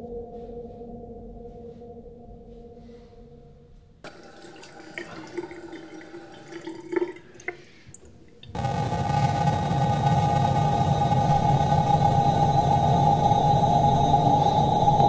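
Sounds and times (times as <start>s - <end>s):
faint low drone: 0.0s - 4.0s, 8.3s - 15.0s
tap water splashing into sink: 4.1s - 8.6s
loud steady droning noise: 8.4s - 15.0s.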